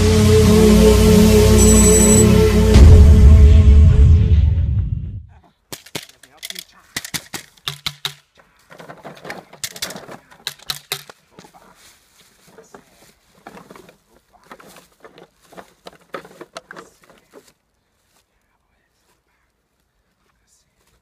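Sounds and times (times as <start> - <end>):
crinkly plastic tarp rustling: 8.5 - 10.5, 11.2 - 17.6.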